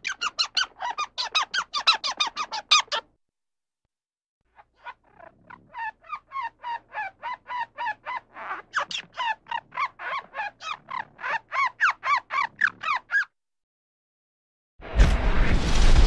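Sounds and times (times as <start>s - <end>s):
squirrel chirping: 0.0s - 3.0s, 4.8s - 13.3s.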